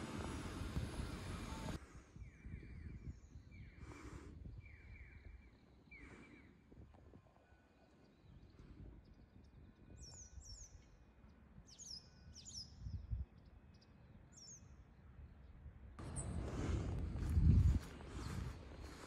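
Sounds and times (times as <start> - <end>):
faint low outdoor rumble: 0.0 - 2.4, 6.8 - 19.0.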